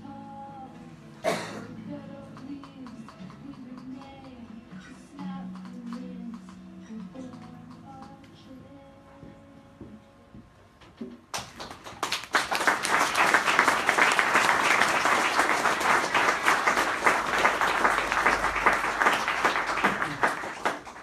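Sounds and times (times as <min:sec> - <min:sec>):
audience applauding: 0:11.3 - 0:21.0.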